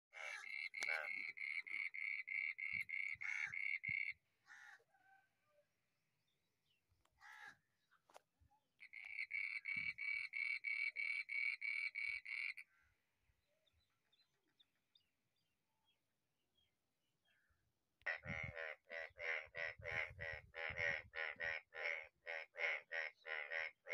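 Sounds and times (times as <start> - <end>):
repeated animal call: 0.1 - 5.3, 8.8 - 12.8, 18.1 - 23.9.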